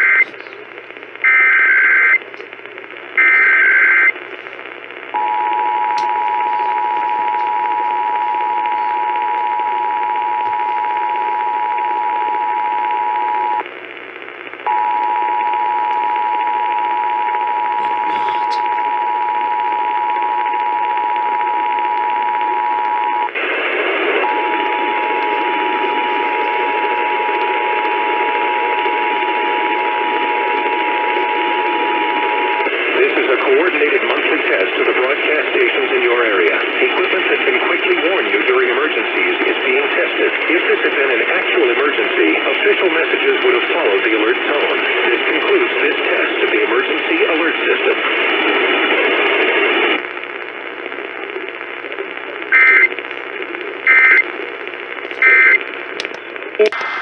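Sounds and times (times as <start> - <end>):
radio hiss: 0.0 - 57.0
buzzy data bursts: 52.5 - 52.9, 53.8 - 54.2, 55.2 - 55.6.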